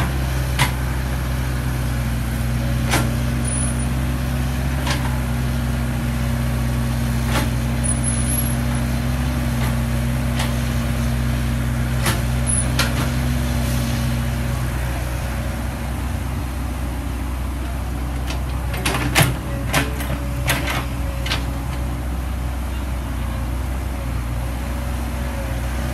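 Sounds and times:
excavator diesel engine running: 0.0s - 25.9s.

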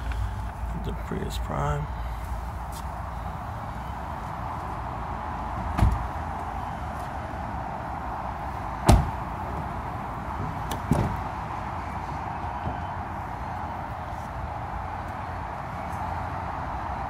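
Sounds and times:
steady background noise: 0.0s - 17.0s
car doors shutting: 5.7s - 6.1s, 8.8s - 9.2s, 10.4s - 11.2s.

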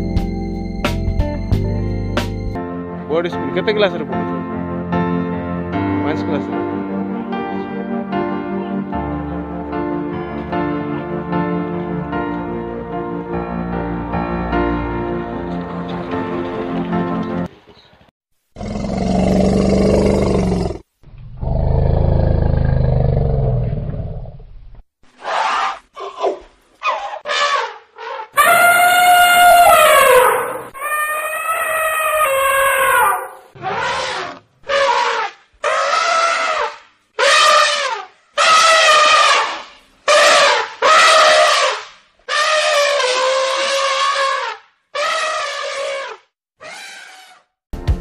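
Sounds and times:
large animal roaring: 18.6s - 24.3s
wind instrument melody: 28.4s - 31.6s.

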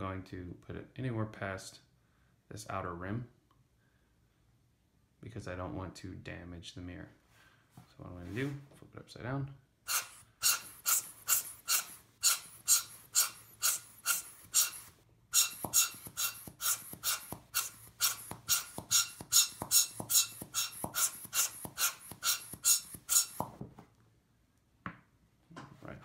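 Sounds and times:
air blower hissing puffs: 9.9s - 23.4s.

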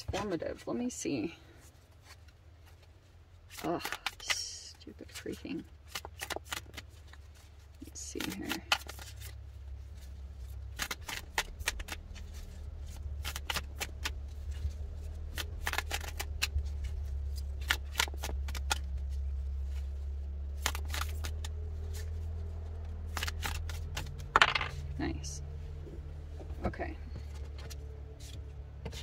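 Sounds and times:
steady low hum: 0.0s - 29.0s
cards being shuffled: 1.7s - 24.9s.

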